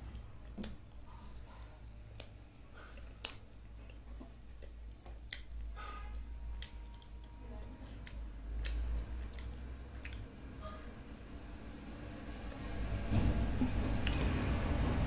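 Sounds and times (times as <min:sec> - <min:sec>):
food squishing: 0:00.0 - 0:10.4
low hum: 0:00.0 - 0:15.0.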